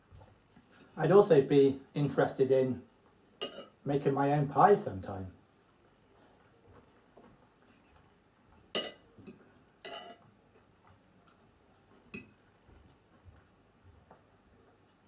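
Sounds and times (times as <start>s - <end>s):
cutlery clinking on plate: 3.4s - 3.8s, 8.7s - 10.2s, 12.1s - 12.4s.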